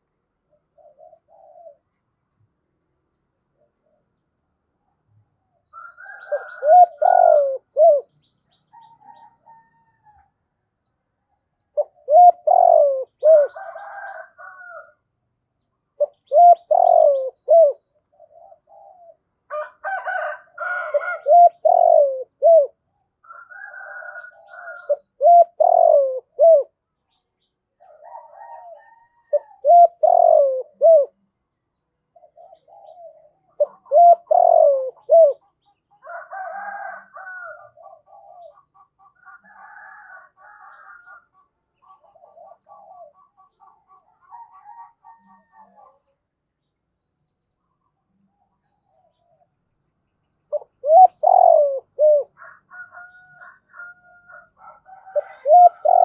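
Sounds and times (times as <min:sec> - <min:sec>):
dove cooing: 0:00.5 - 0:02.0, 0:05.8 - 0:10.2, 0:11.7 - 0:14.9, 0:16.0 - 0:26.8, 0:27.8 - 0:31.3, 0:32.1 - 0:46.2, 0:50.5 - 0:56.0
faint bird calls: 0:04.8 - 0:10.3, 0:11.6 - 0:15.0, 0:15.9 - 0:19.6, 0:20.6 - 0:27.2, 0:32.1 - 0:46.3, 0:50.4 - 0:56.0.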